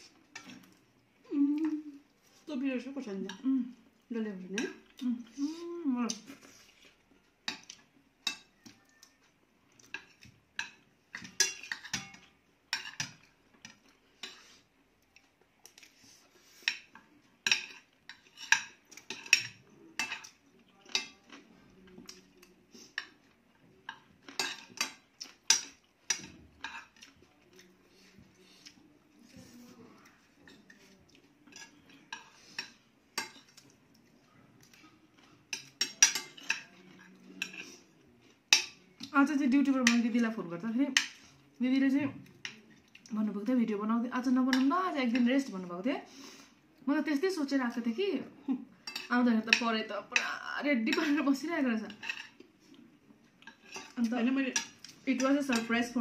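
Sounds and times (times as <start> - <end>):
cutlery scraping ceramic plates: 9.9 - 14.6, 23.9 - 27.1, 30.4 - 33.6, 34.7 - 37.9, 48.8 - 50.3, 51.9 - 52.4, 53.4 - 56.0.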